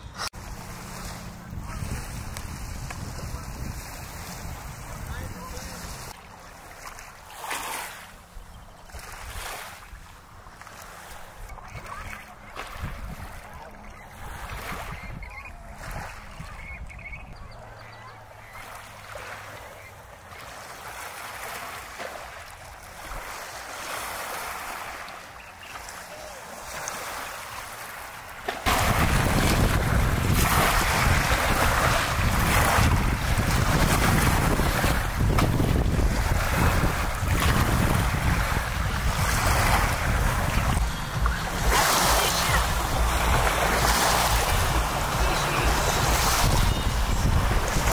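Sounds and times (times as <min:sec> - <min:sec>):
wind buffeting microphone: 0:00.0 - 0:06.2, 0:11.3 - 0:18.0, 0:28.6 - 0:47.9
water around boat: 0:00.0 - 0:47.9.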